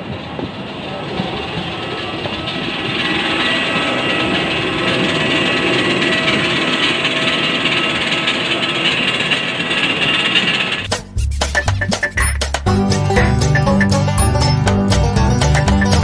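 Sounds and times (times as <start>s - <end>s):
jet engine rush: 0.0s - 10.9s.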